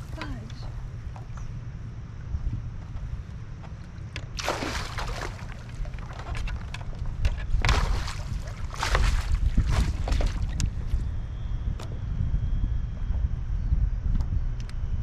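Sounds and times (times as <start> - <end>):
wind rumble on microphone: 0.0 - 15.0
fish splashing at water surface: 4.4 - 6.8, 7.6 - 10.6.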